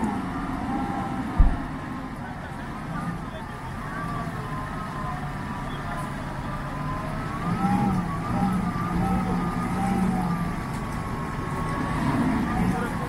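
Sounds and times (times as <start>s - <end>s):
pickup engine revving under load: 6.8s - 13.0s.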